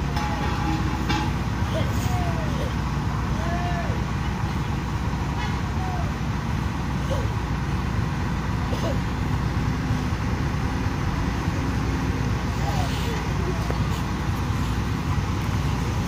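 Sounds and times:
truck diesel engine droning: 0.0 - 16.0.

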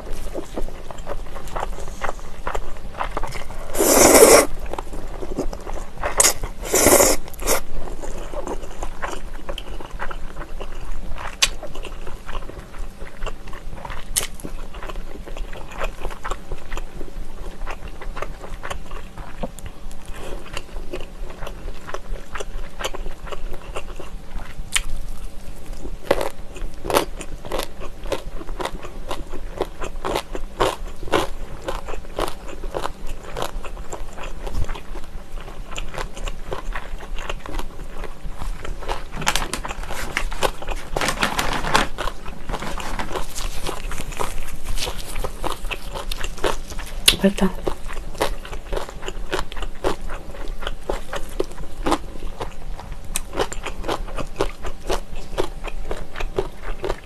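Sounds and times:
wet chewing and mouth clicks: 0.1 - 25.2, 42.0 - 57.0
noodles slurped: 3.5 - 4.6, 6.1 - 7.6.

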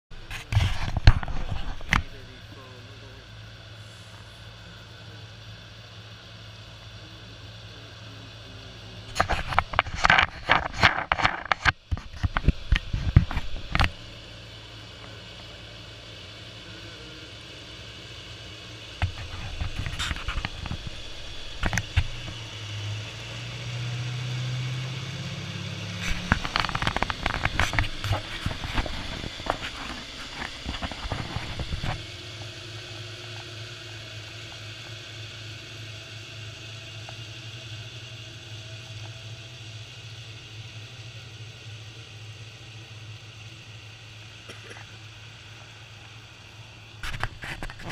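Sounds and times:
diesel engine drone: 0.1 - 47.9
clatter of ballast stones: 9.1 - 14.0, 26.0 - 32.0.

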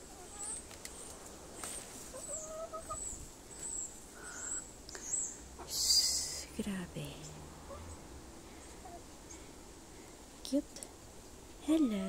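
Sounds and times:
chicken calling: 0.0 - 4.7
small birds chirping: 0.0 - 10.9.

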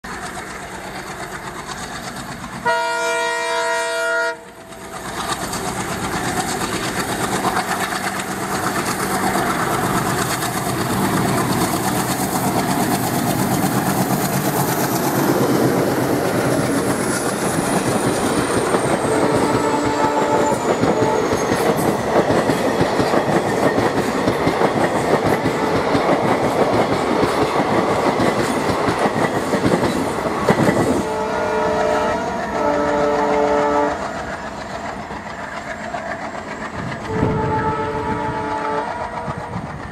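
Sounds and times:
diesel locomotive engine: 0.0 - 39.9
train horn: 2.6 - 4.6, 19.0 - 21.5, 31.0 - 34.2, 37.0 - 39.6
wheels clattering over rail joints: 4.5 - 31.1, 32.4 - 39.9.

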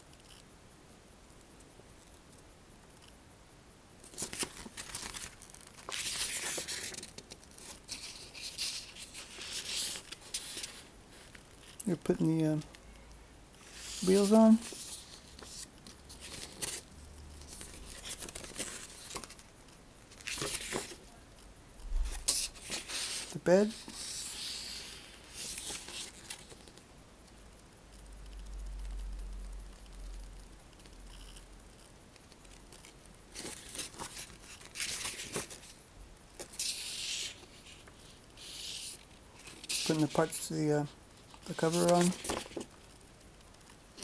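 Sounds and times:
paper pages rustling: 4.0 - 11.9, 13.6 - 16.8, 17.4 - 19.4, 20.1 - 21.1, 22.0 - 26.8, 32.6 - 35.8, 36.4 - 42.9.

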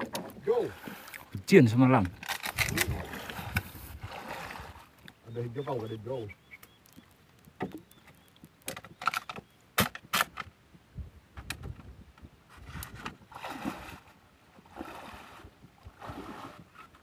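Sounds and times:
wading through swamp water: 0.0 - 6.6, 13.2 - 17.0.

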